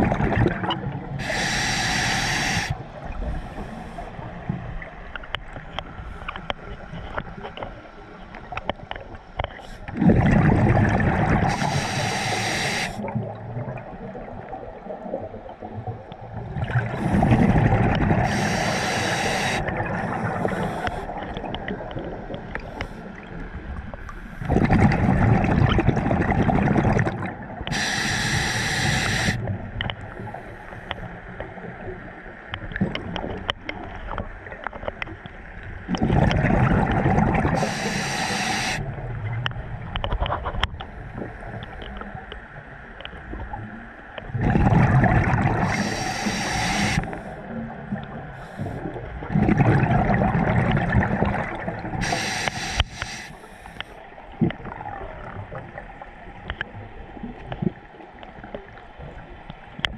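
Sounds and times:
quiet underwater noise: 0.0s - 59.9s
scuba diver breathing underwater: 1.2s - 4.2s, 9.6s - 13.2s, 16.8s - 21.4s, 27.7s - 29.5s, 36.1s - 38.9s, 44.7s - 47.4s, 52.0s - 54.0s
bubbling and rushing gas: 9.9s - 13.6s, 16.5s - 20.6s, 24.4s - 29.4s, 36.0s - 38.8s, 44.3s - 47.0s, 49.3s - 53.2s.

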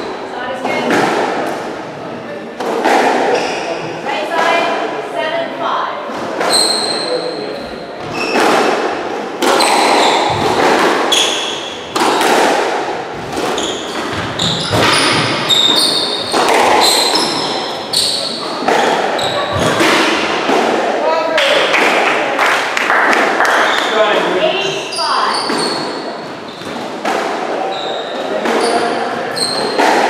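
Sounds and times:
shoes squeaking on wooden floor: 6.2s - 8.6s, 9.4s - 12.0s, 13.1s - 20.0s, 23.8s - 27.0s, 27.6s - 30.0s
squash ball cracking off rackets: 8.1s - 21.0s.

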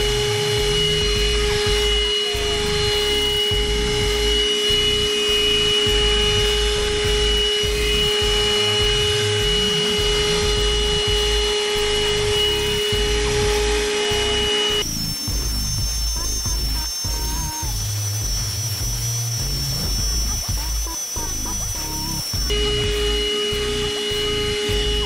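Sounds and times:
handheld vacuum cleaner motor whine: 0.0s - 25.0s.

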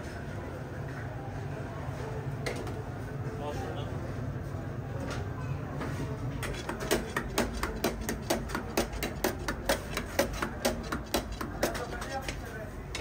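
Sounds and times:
metal blade tapping on metal tray: 6.4s - 12.4s.

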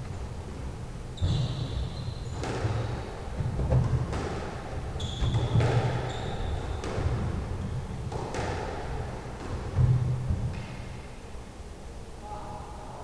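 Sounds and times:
sneakers squeaking on wooden floor: 1.1s - 3.6s, 4.9s - 8.0s
squash ball hitting rackets and walls: 1.1s - 11.4s.

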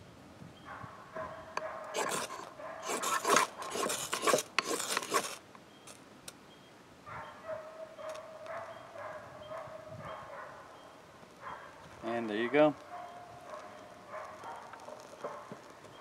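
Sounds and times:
knife scraping ferrocerium rod: 2.0s - 5.4s.

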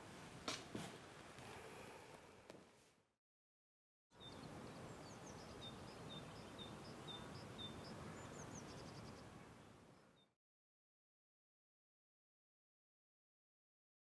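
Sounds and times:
songbird chirping: 4.1s - 10.4s
low background noise: 4.2s - 10.2s.

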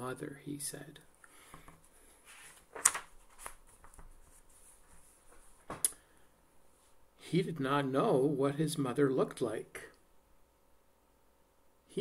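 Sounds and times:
book pages rustling: 2.1s - 5.8s
sharp paper snap: 2.7s - 3.5s.

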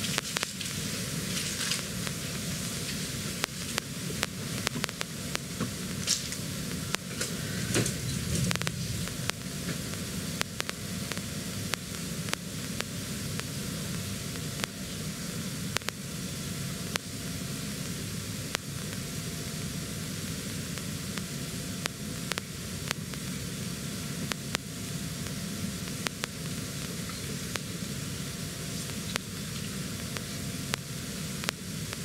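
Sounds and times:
microphone static hiss: 0.0s - 32.0s
low rumble: 6.9s - 11.1s.

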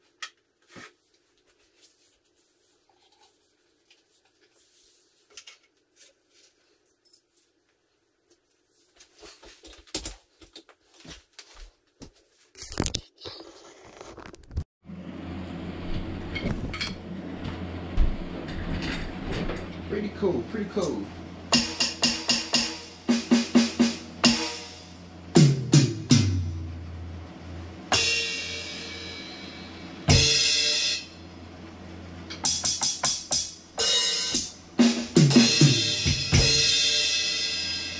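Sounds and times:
scraping rustle: 12.2s - 14.6s
drum hits: 21.5s - 24.7s
cymbal crashes: 27.9s - 31.2s, 33.8s - 37.9s.

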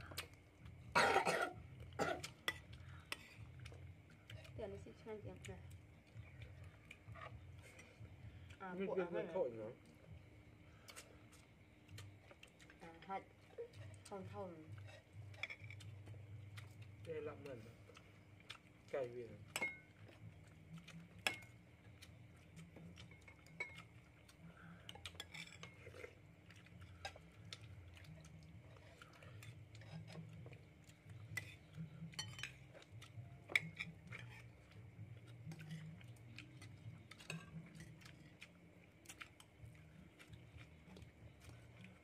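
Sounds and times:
faint low hum: 0.0s - 42.0s
spoons clinking against plates: 13.8s - 16.0s, 19.4s - 20.2s, 21.2s - 21.6s, 23.0s - 24.0s, 24.9s - 26.1s, 31.3s - 34.8s, 36.6s - 38.0s.

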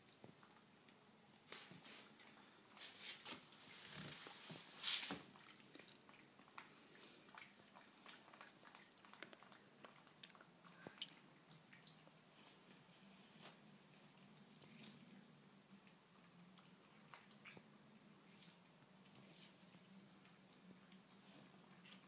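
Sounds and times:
monkey crunching corn: 5.3s - 12.8s.

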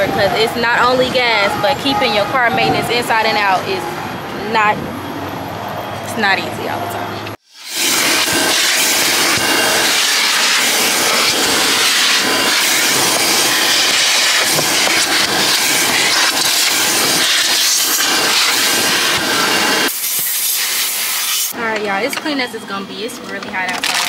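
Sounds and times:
vacuum hose suction: 7.5s - 21.5s.

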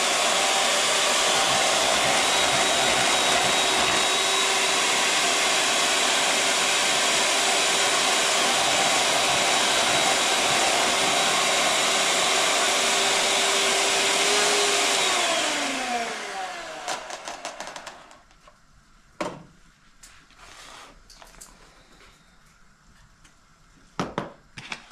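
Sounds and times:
electric hand mixer whining: 0.0s - 18.2s
mixer knocking on counter: 1.2s - 4.2s.

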